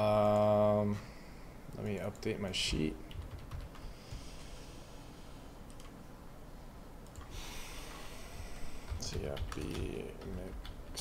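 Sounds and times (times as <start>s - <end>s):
keyboard and mouse clicks: 5.7s - 6.0s, 8.9s - 11.0s.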